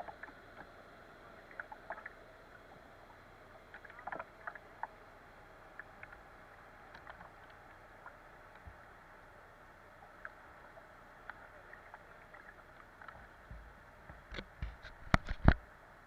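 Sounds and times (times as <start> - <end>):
small ticks and splashes: 0.0 - 0.7, 1.3 - 2.5, 3.7 - 5.0, 5.7 - 15.4.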